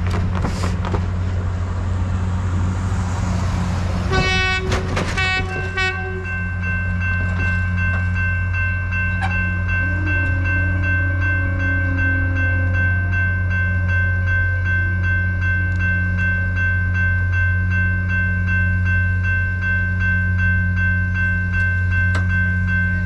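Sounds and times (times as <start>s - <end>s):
locomotive rumble: 0.0s - 23.0s
crossing warning bell ringing: 3.6s - 23.0s
train horn blasts: 4.1s - 6.6s, 9.2s - 13.2s.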